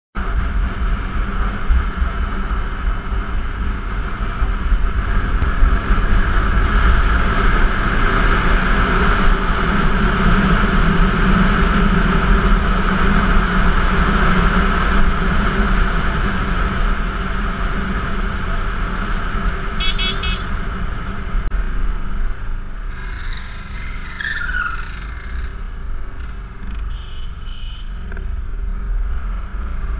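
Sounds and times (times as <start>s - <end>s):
vehicle engine and road noise: 0.1s - 29.9s.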